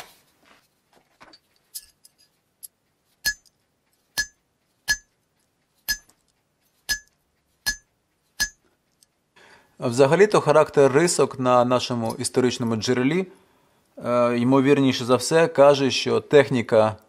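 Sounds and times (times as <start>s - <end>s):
hammer striking chisel on metal: 3.2s - 3.5s, 4.2s - 5.1s, 5.9s - 6.2s, 6.9s - 8.6s.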